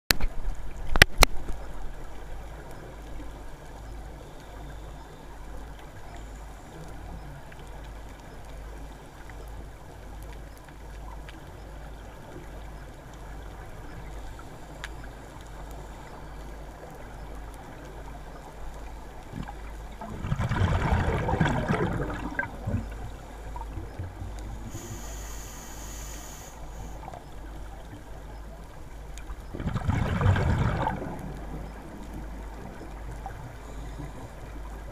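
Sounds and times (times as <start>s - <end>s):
muffled underwater rumble: 0.2s - 34.9s
exhaled regulator bubbles: 19.4s - 25.2s, 29.4s - 31.8s.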